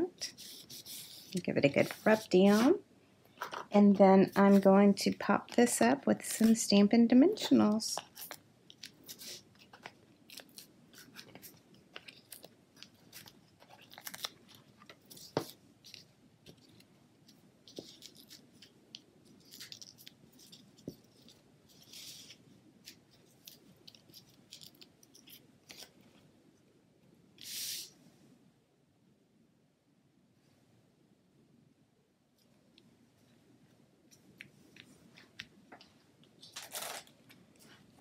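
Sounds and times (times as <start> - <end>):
paper crinkling and rustling: 0.3 - 2.8, 3.4 - 26.3, 34.6 - 38.0.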